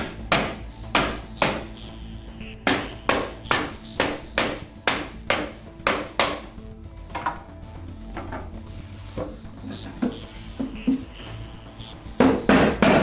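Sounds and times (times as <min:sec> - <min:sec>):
rubber mallet striking wood: 0:00.0 - 0:01.8, 0:02.6 - 0:06.5, 0:12.2 - 0:13.0.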